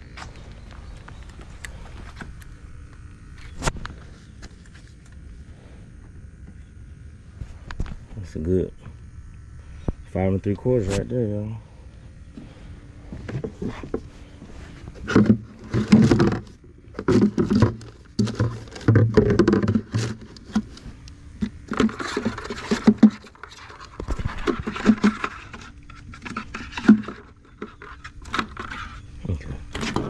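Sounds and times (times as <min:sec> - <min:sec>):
handling knocks and scrapes: 0:12.4 - 0:29.1.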